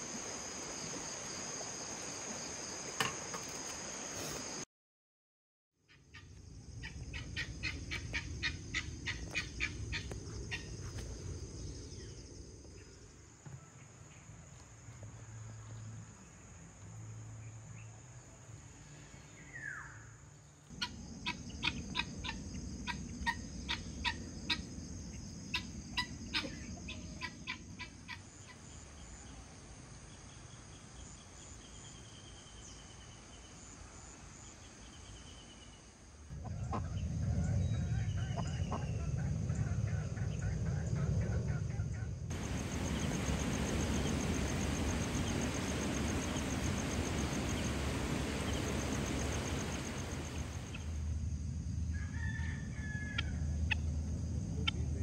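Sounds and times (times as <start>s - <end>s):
high insect drone: 0.0s - 4.6s, 6.0s - 55.0s
low rushing background: 36.3s - 51.9s
birds chirping: 42.3s - 51.0s.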